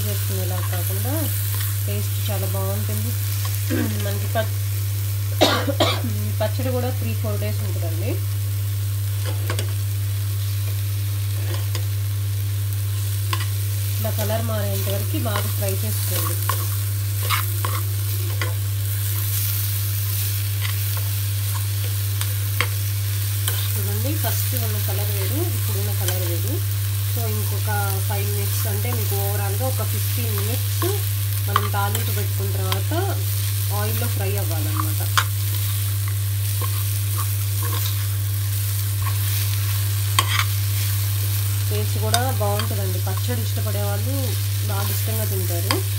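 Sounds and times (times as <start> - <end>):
chutney sizzling in oil: 0.0 - 45.9
metal spoon scraping a pan: 15.4 - 19.2, 36.5 - 38.2, 39.0 - 40.9.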